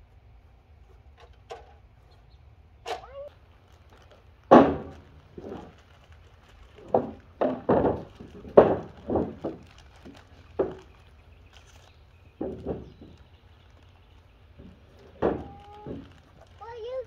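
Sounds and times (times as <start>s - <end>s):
wooden boards knocking: 4.5s - 5.7s, 6.8s - 10.9s, 12.3s - 13.3s, 14.6s - 16.1s.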